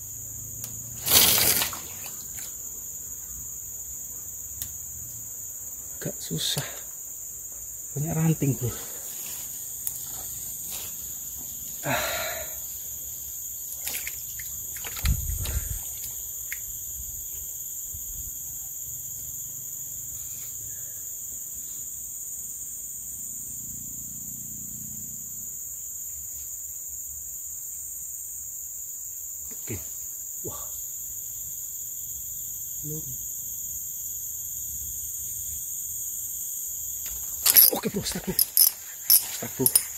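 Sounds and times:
shrill insect chorus: 0:00.0 - 0:39.9
handling knocks and rustles: 0:37.1 - 0:39.9.

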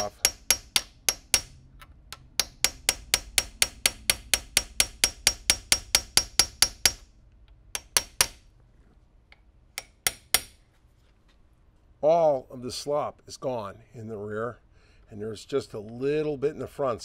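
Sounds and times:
hammer tapping steel punch: 0:00.0 - 0:08.5, 0:09.3 - 0:10.6.

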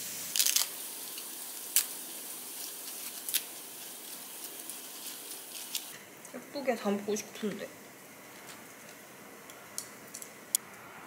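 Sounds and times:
steady hiss: 0:00.0 - 0:11.0
lettuce leaves tearing: 0:00.2 - 0:06.0.

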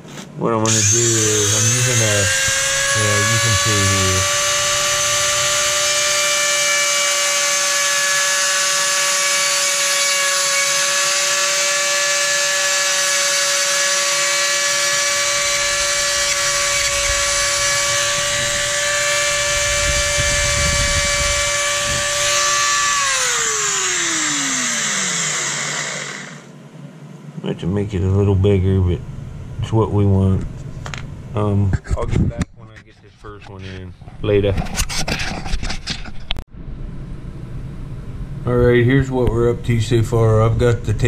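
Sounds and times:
rotary tool whine: 0:00.6 - 0:26.6.

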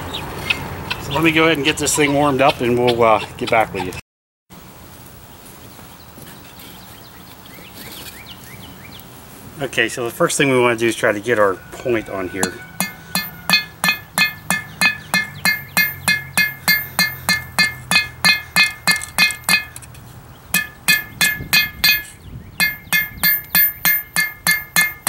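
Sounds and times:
hammer ringing on anvil: 0:11.7 - 0:19.8, 0:20.6 - 0:25.0.

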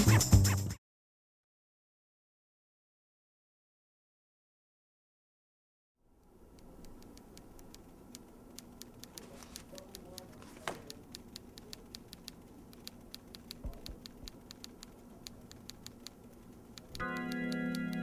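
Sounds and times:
low steady hum: 0:06.1 - 0:18.0
clock ticking fast: 0:06.5 - 0:18.0.

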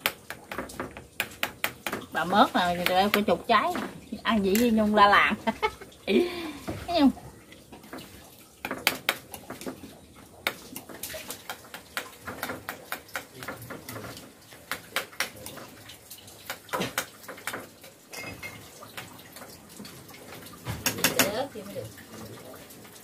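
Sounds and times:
water splashing under a tap: 0:00.0 - 0:23.0
dishes and utensils clinking: 0:16.7 - 0:18.8, 0:20.6 - 0:21.5.

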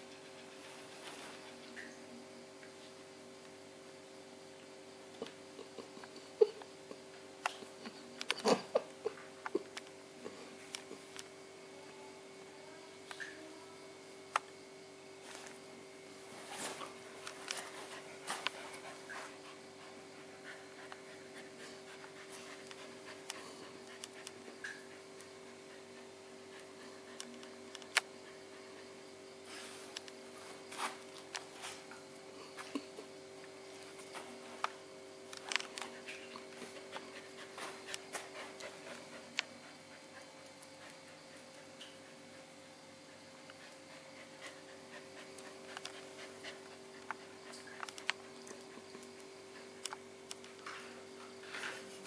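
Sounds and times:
faint hum: 0:00.0 - 0:52.0
puppy panting: 0:17.3 - 0:29.0, 0:35.7 - 0:50.0
paws clicking on tile floor: 0:33.8 - 0:52.0.

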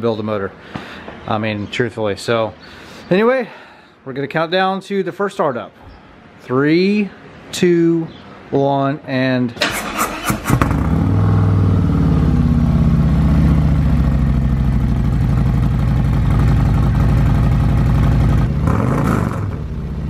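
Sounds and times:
motorcycle engine starting and idling: 0:09.6 - 0:20.0.

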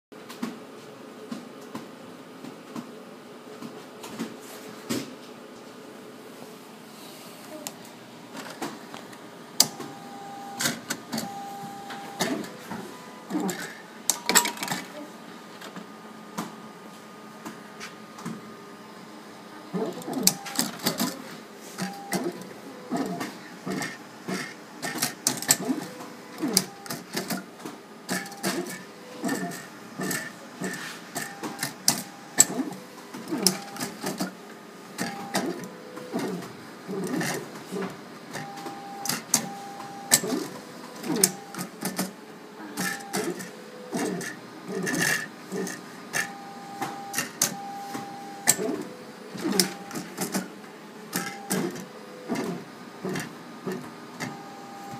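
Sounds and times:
disc drive whines: 0:08.2 - 0:54.9.

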